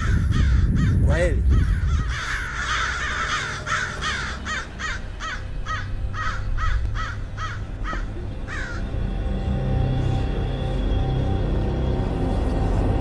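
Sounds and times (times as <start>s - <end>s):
crows cawing: 0.0s - 9.2s.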